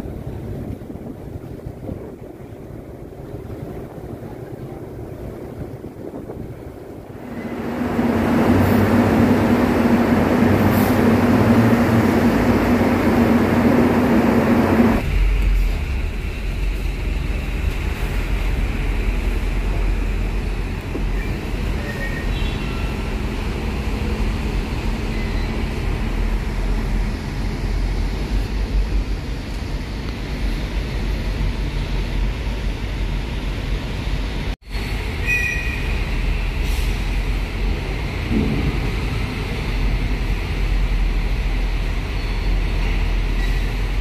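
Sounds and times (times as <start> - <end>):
heavy machinery rumbling: 6.9 - 33.3, 35.8 - 44.0
faint high squeaks: 21.1 - 23.0.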